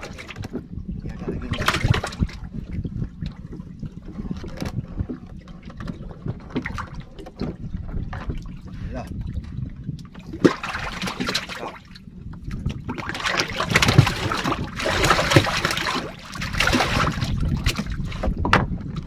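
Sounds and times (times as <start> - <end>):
water splashing against boat: 0.0 - 19.0
wind rumble on microphone: 0.0 - 19.0
fish thrashing at surface: 1.5 - 2.4, 10.3 - 11.7, 12.8 - 18.0.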